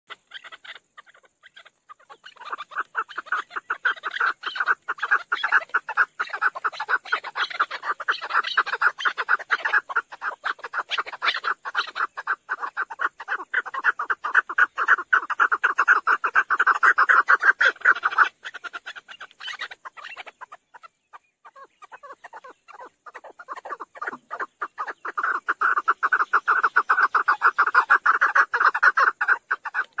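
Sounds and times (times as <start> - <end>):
partridge clucking calls: 0.1 - 30.0.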